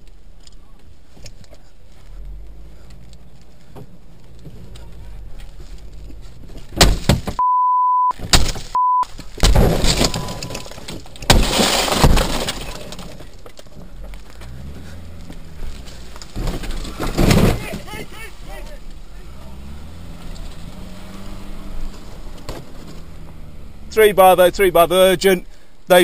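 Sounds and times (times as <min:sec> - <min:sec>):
censor bleep: 0:07.4 - 0:08.2, 0:08.8 - 0:09.1, 0:10.0 - 0:10.7
sledgehammer smashing windscreen: 0:08.2 - 0:08.7, 0:09.4 - 0:13.4, 0:16.0 - 0:17.9
glass crunching and crackling: 0:08.2 - 0:17.7.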